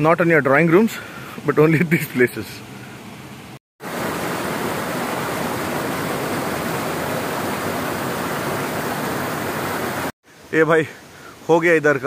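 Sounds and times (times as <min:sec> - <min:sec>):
water rushing over rocks: 0:03.8 - 0:10.2.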